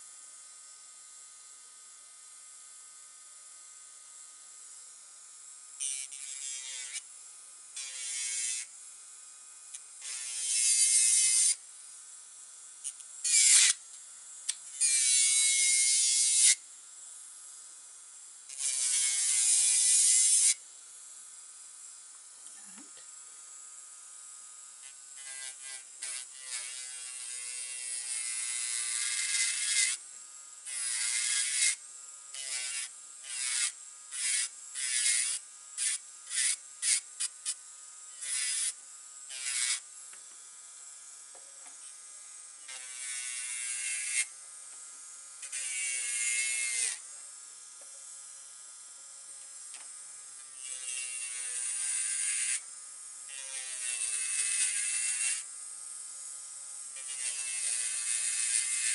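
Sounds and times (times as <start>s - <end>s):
electric nail drill whining: 0.0s - 58.9s
drill bit rasping on nails: 5.8s - 8.8s, 9.7s - 11.6s, 12.8s - 16.6s, 18.5s - 20.6s, 24.8s - 40.4s, 41.7s - 44.8s, 45.4s - 47.1s, 49.4s - 55.5s, 56.8s - 58.9s.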